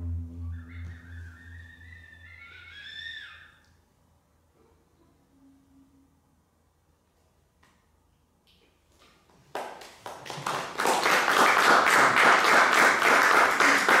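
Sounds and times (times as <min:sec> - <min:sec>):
audience applause: 0:09.9 - 0:14.0.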